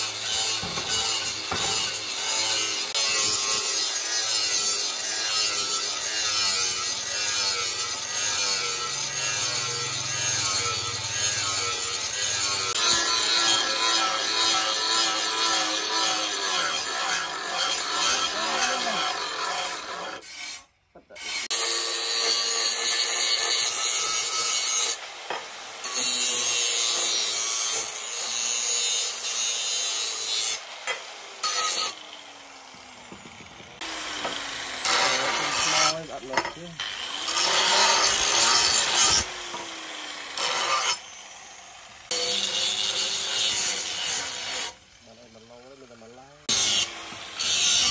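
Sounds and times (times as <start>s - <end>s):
angle grinder grinding steel: 0.0s - 47.9s.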